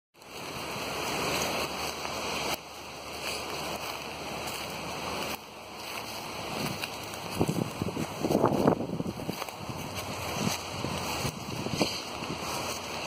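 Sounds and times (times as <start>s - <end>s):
wind rushing over microphone: 0.3s - 13.0s.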